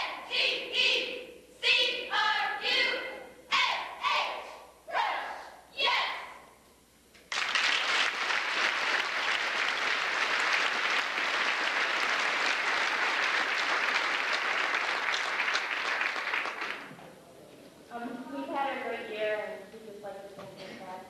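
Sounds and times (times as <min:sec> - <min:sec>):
crowd applauding: 0:07.3 - 0:17.0.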